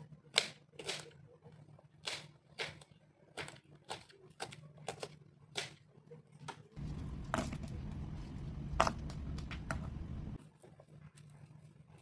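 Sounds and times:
steady low rumble: 6.8s - 10.4s.

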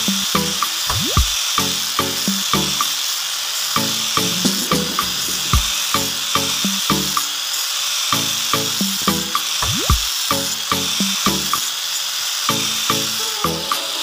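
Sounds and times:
background music with low notes: 0.0s - 2.9s, 3.8s - 7.3s, 8.1s - 11.6s, 12.5s - 14.0s
sanding disc grinder hissing: 0.0s - 14.0s
rising sweep: 4.2s - 6.8s.

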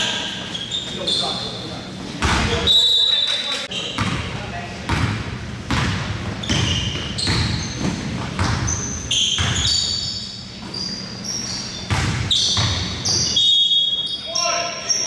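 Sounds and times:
sneakers squeaking on floor: 0.0s - 15.0s
basketball dribbling: 4.9s - 9.9s, 11.8s - 13.3s.

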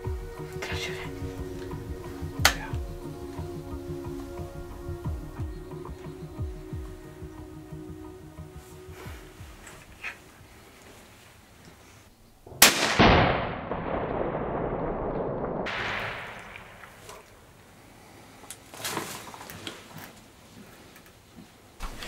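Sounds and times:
rifle shot: 12.5s - 17.2s.

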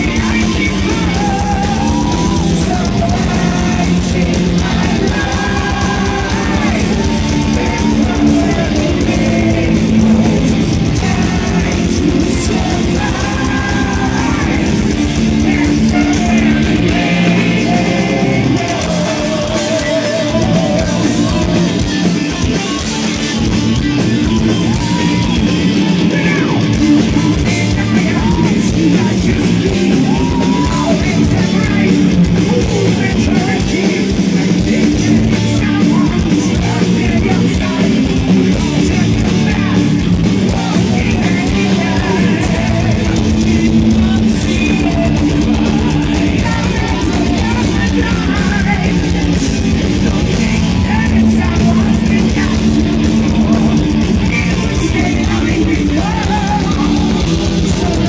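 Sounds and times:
distorted electric guitars: 0.0s - 58.0s
person singing: 0.0s - 58.0s.

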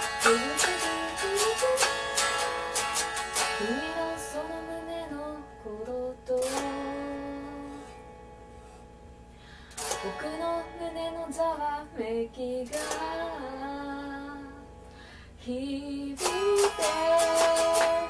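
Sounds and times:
woman singing: 0.0s - 2.4s, 3.5s - 7.9s, 10.0s - 14.7s, 15.4s - 18.0s
strummed guitar: 0.0s - 18.0s.

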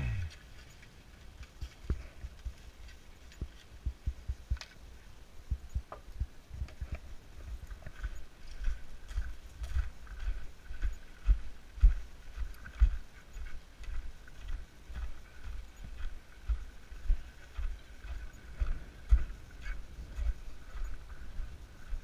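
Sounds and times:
footsteps crunching on gravel: 6.7s - 22.0s.

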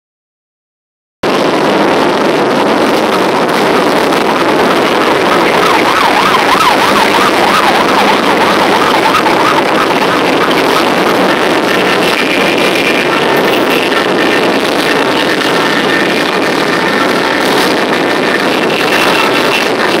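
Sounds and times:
motorcycle engines rumbling: 1.2s - 20.0s
siren yelping: 3.1s - 19.7s.

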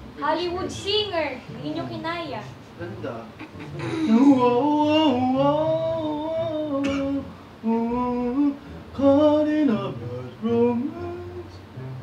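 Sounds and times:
man singing held notes: 3.6s - 12.0s.

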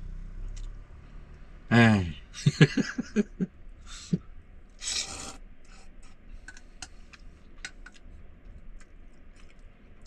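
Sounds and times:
man slurping noodles: 4.8s - 5.4s.

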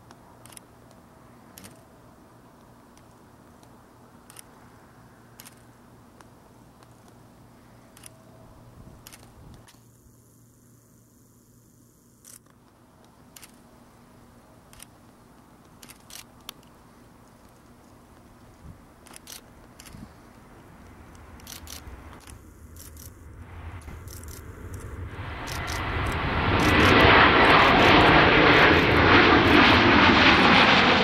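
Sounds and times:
distant jet airliner rumble: 18.2s - 31.0s
sharp clicks: 20.8s - 23.2s, 23.9s - 27.0s.

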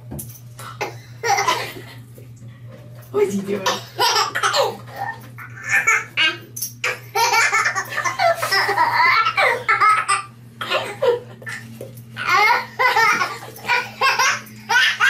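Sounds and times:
baby laughing: 1.2s - 1.8s, 3.9s - 11.6s, 12.2s - 15.0s.

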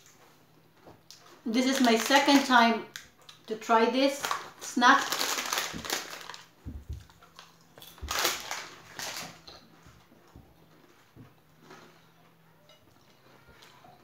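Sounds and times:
crisp packet crinkling: 1.5s - 2.6s, 4.1s - 9.5s.

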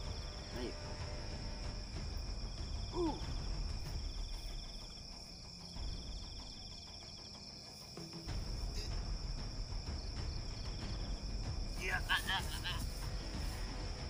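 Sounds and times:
cricket chorus: 0.0s - 14.0s.

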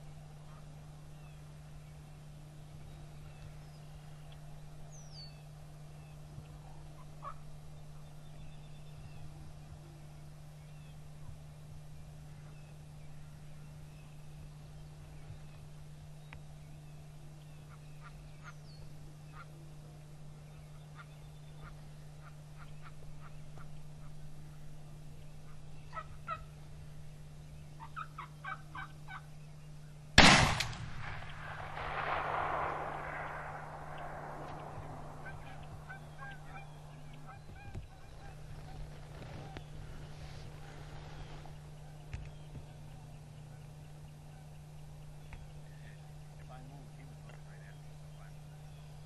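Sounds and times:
turkeys calling: 20.9s - 27.0s, 27.7s - 29.4s, 31.0s - 43.0s
shotgun blast echoing: 30.2s - 37.2s.

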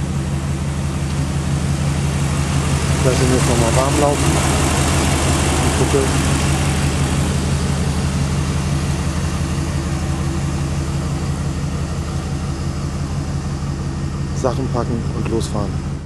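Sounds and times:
engine idling: 0.0s - 16.0s.

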